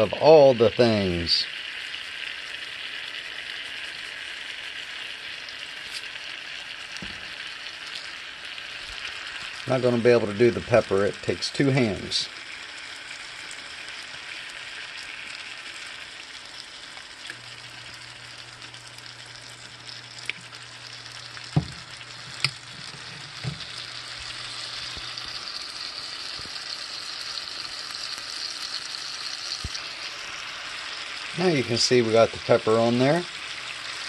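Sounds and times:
steaks sizzling in a skillet: 0:00.0 - 0:34.0.

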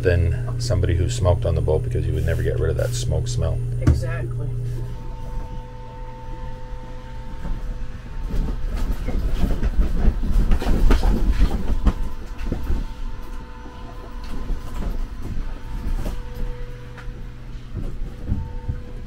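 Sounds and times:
boat knocks and rattles: 0:13.9 - 0:19.0.

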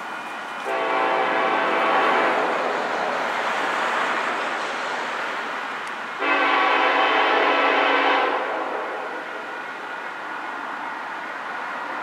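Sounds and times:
distant locomotive air horn: 0:00.6 - 0:02.8, 0:06.2 - 0:09.3.

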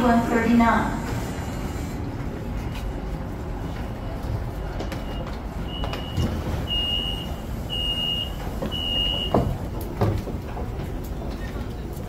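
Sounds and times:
low train rumble: 0:00.0 - 0:12.0
high electronic door beeps: 0:04.8 - 0:09.5.

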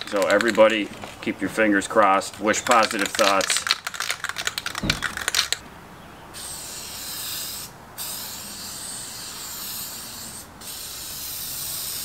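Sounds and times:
aerosol can spraying: 0:06.4 - 0:12.0.

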